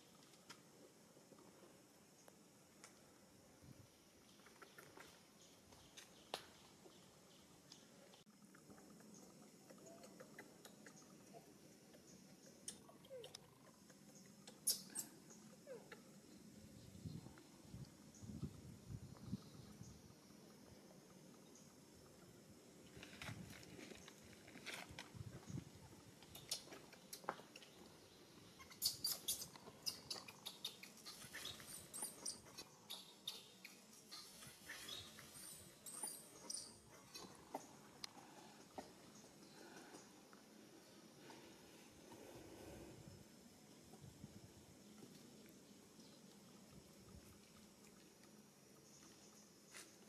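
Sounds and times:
faint clicks and ticks: 0:02.2 - 0:03.2, 0:04.2 - 0:16.3, 0:35.8 - 0:40.6
baby monkey squeaking: 0:28.6 - 0:33.4.

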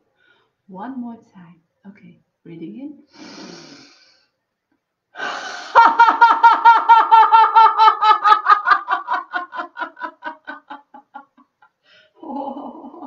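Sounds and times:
woman laughing: 0:05.7 - 0:13.0.

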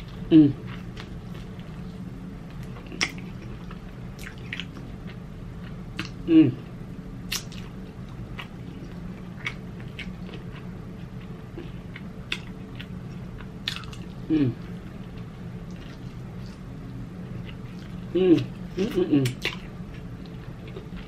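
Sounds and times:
steady low hum: 0:00.0 - 0:21.0
person murmuring mm: 0:00.3 - 0:00.6, 0:06.2 - 0:06.6, 0:14.3 - 0:14.7, 0:18.1 - 0:19.4.

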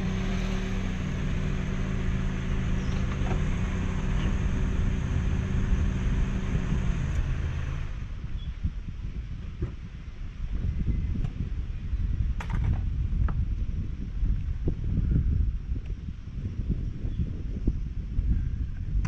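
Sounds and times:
car engine running: 0:00.0 - 0:08.3.

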